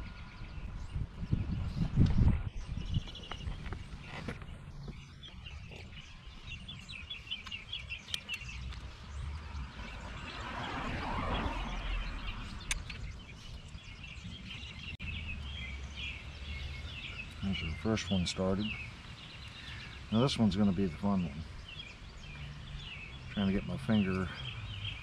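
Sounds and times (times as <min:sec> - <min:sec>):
small birds chirping: 0:00.0 - 0:25.0
broad rushing swell: 0:09.5 - 0:12.8.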